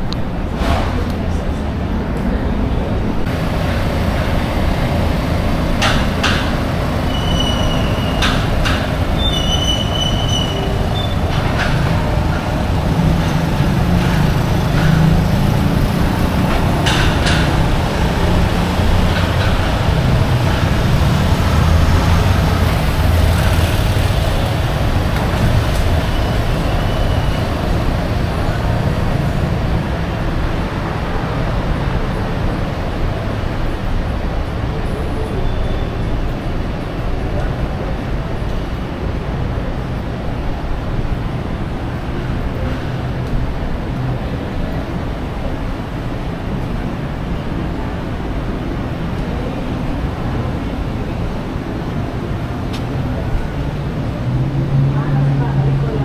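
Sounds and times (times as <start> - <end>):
traffic rumble: 0.0 - 56.0
short high squeaks: 7.1 - 8.5, 9.2 - 11.2.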